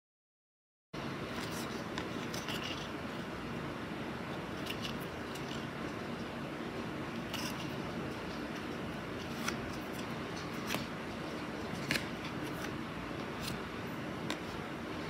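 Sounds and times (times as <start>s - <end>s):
low room hum: 1.0s - 15.0s
cards flipped by hand: 7.4s - 14.7s.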